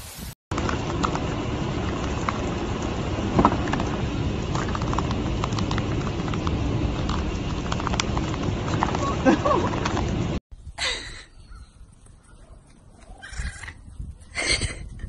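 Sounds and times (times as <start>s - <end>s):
car engine running: 0.5s - 10.4s.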